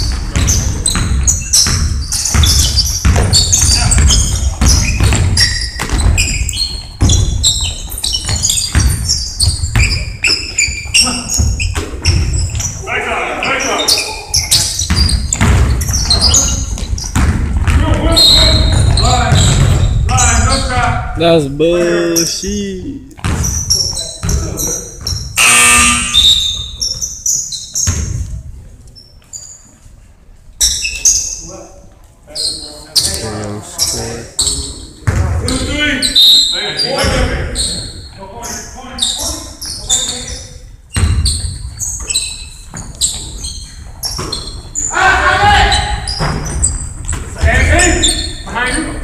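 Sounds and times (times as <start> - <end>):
basketball thuds: 0.0 - 10.2, 14.6 - 20.4, 23.2 - 25.4
sneakers squeaking: 0.0 - 49.0
players' voices: 3.2 - 5.6, 10.8 - 23.2, 31.4 - 40.6, 44.9 - 46.2, 47.2 - 49.0
loud steady pitched tone: 25.4 - 26.6.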